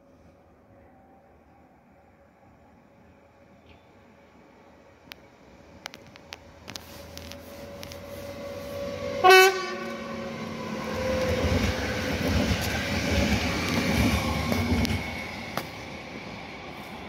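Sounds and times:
train wheels rumbling on rails: 5.0s - 17.0s
train horn toot: 9.2s - 10.1s.

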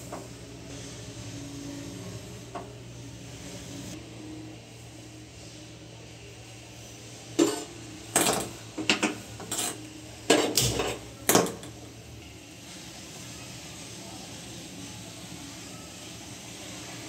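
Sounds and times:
metal kitchen utensils clattering: 7.4s - 11.8s.

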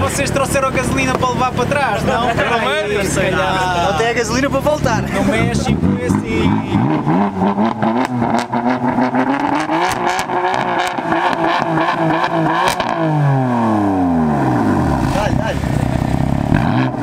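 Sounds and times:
exhaust pops and crackles: 0.0s - 1.8s, 4.4s - 13.0s, 14.8s - 17.0s
car engine revving: 0.0s - 17.0s.

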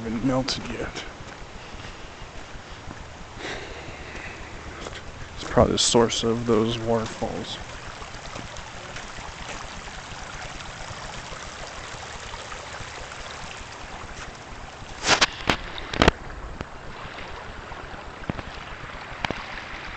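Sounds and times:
water trickling in rivulet: 4.8s - 16.2s.

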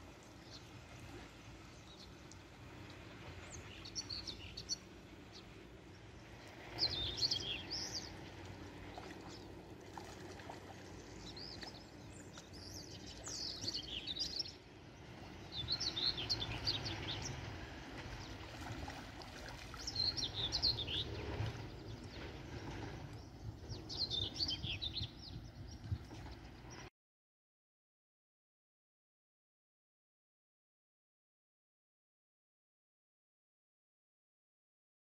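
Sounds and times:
songbird twittering: 6.8s - 8.1s, 15.5s - 17.4s, 19.8s - 22.2s, 23.2s - 26.8s.

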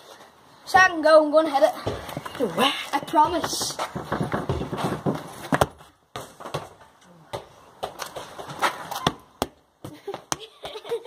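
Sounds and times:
footsteps on concrete: 1.8s - 11.0s
football knocking on ground: 3.3s - 8.0s.

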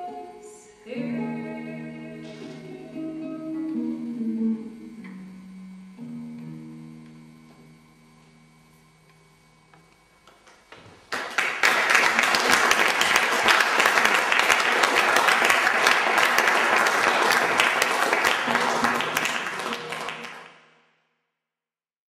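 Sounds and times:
guitar chord ringing: 0.0s - 10.0s
audience applause: 11.1s - 20.6s.

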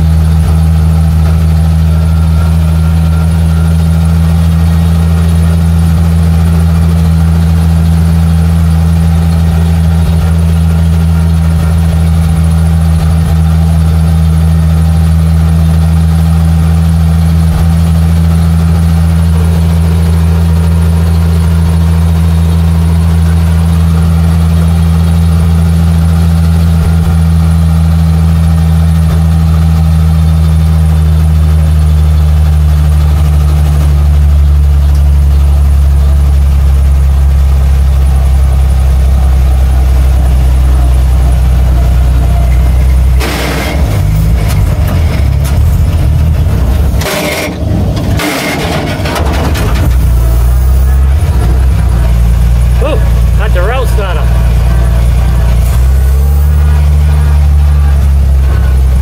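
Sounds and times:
truck engine drone from cab: 0.0s - 59.0s
rattles and knocks: 42.2s - 52.6s.

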